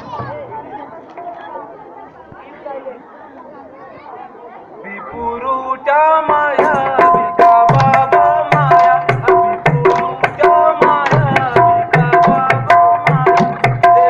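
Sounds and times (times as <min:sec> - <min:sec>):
hand drum playing quick beat: 0:06.5 - 0:14.0.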